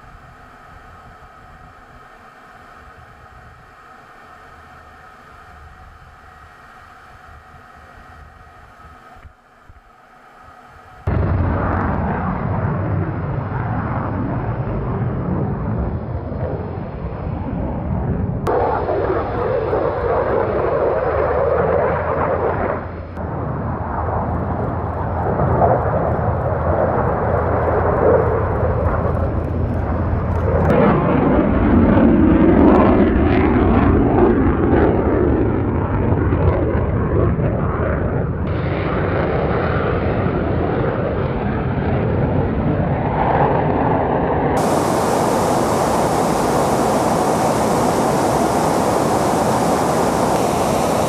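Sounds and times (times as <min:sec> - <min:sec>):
fighter jet flying past: 0:10.2 - 0:51.0.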